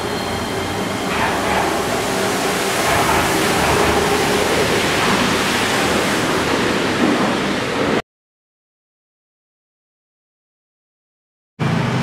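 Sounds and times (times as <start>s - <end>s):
monorail train running noise: 0.0s - 8.0s, 11.6s - 12.0s.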